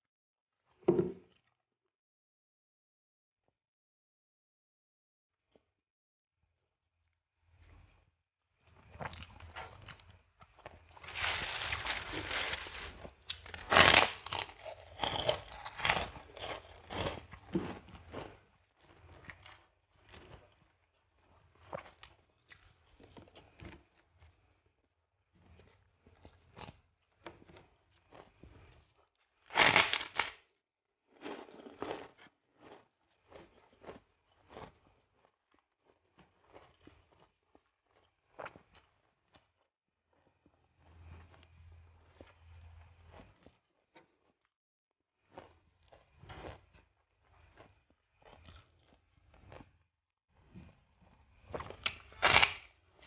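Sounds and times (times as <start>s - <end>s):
crunching chews: 8.6s - 24.5s, 25.4s - 30.4s, 31.1s - 39.6s, 45.2s - 49.8s, 50.5s - 53.0s
rice cracker crunching: 10.7s - 20.4s, 29.5s - 30.4s, 31.1s - 34.7s, 51.6s - 52.8s.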